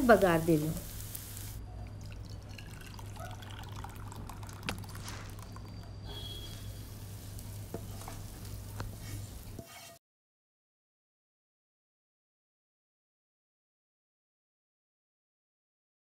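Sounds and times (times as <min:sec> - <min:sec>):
faint sizzle: 0:00.0 - 0:10.0
thick food poured into bowl: 0:02.0 - 0:05.9.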